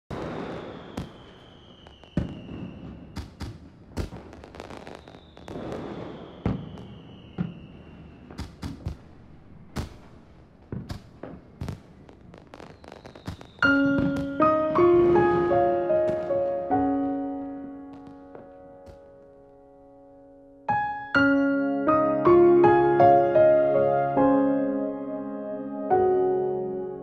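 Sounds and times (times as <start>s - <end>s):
firework whistle sliding down: 0.1s - 3.3s, 4.6s - 8.6s, 12.6s - 16.3s
crackling pops: 0.1s - 7.6s, 8.2s - 19.8s
firework bangs: 0.1s - 19.9s.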